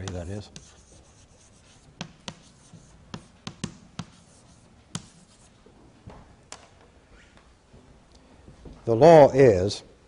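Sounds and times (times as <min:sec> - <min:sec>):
chalk tapping on chalkboard: 0:00.0 - 0:05.5.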